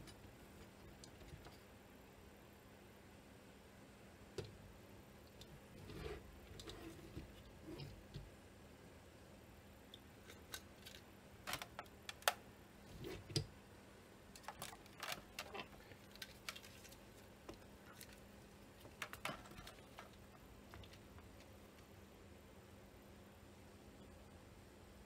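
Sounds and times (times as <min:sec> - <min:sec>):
faint steady hum: 0:00.0 - 0:25.0
clicks and knocks of handling: 0:18.8 - 0:21.9.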